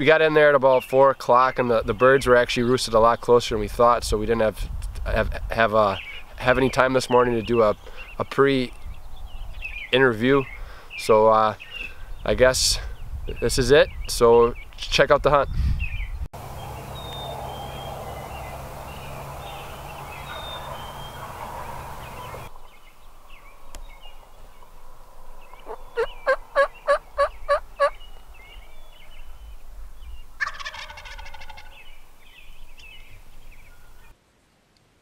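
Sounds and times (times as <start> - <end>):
faint songbird chirps: 5.8 - 14.9, 15.8 - 34.2
steady rushing noise: 16.4 - 27.8
turkey gobbling: 16.8 - 22.5, 25.5 - 28.0, 30.4 - 31.8.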